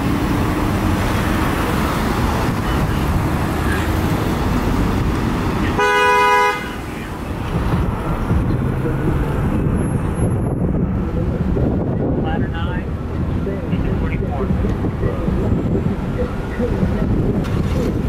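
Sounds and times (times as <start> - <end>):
traffic rumble: 0.0 - 18.0
vehicle horn blast: 5.6 - 7.0.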